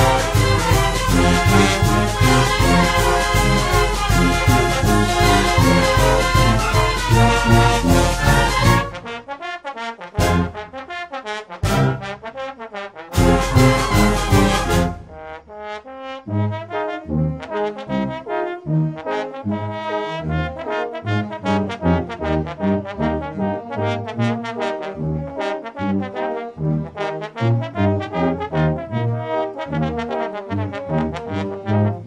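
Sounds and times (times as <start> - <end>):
pulsed bass line: 0.0 - 9.0
brass band playing swing tune: 0.0 - 32.0
trombone: 0.0 - 32.0.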